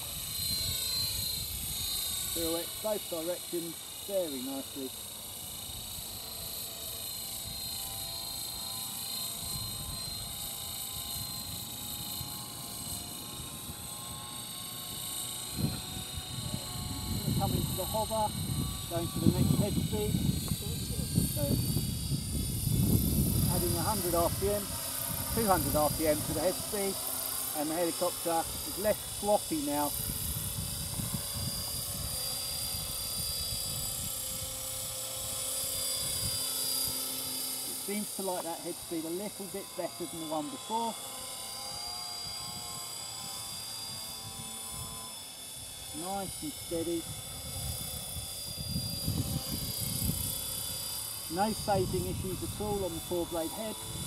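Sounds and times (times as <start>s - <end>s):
model helicopter whine: 0.0s - 54.0s.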